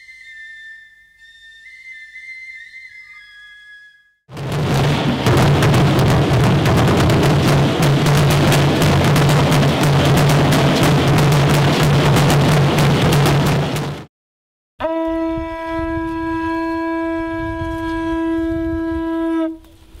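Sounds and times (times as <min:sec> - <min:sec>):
loud drum-heavy music: 0:04.3 - 0:14.1
conch shell trumpet blown: 0:14.8 - 0:19.7.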